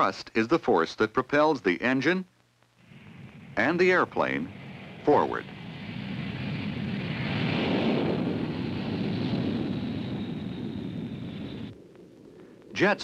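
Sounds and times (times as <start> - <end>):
thin high whine: 2.7 - 13.0
jet engines running: 2.8 - 13.0.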